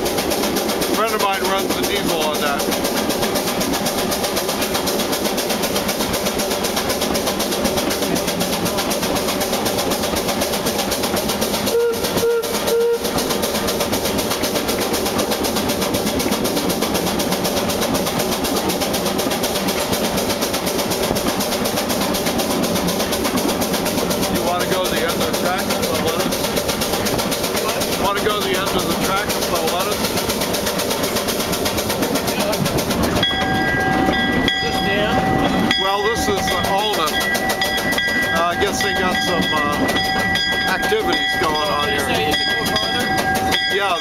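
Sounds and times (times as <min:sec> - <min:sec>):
steam train rattling on rails: 0:00.0 - 0:44.0
steam locomotive whistle toots: 0:11.6 - 0:13.3.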